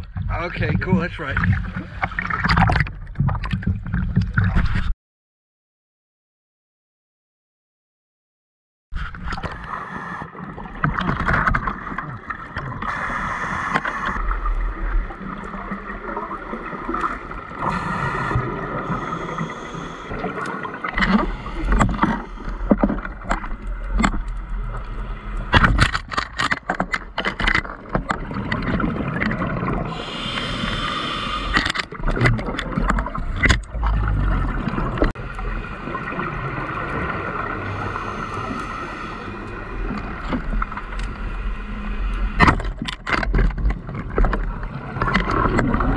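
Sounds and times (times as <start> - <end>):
exhaled bubbles: 9.3 - 24.0, 27.8 - 40.9
scuba regulator breathing: 9.4 - 10.4, 12.8 - 14.2, 17.6 - 23.1, 29.9 - 31.8, 37.6 - 39.7.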